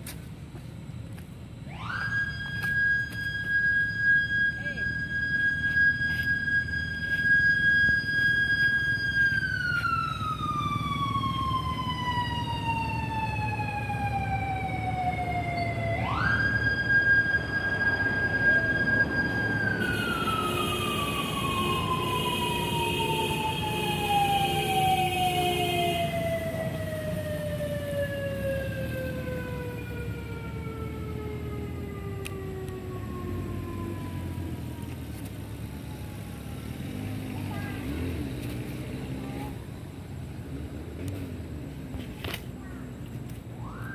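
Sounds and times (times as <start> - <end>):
siren wailing: 1.6 - 37.1, 43.6 - 43.9
other steady tones: 12.8 - 33.5.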